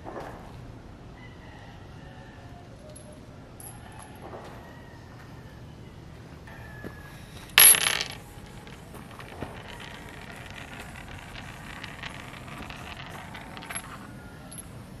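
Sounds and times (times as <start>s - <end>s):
brass cases clinking on table: 7.3s - 14.9s.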